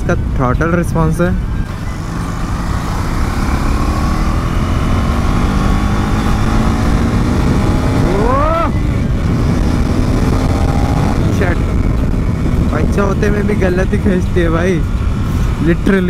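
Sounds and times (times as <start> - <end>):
motorcycle engine running: 1.4 - 16.0
rising and falling tone: 1.6 - 11.9.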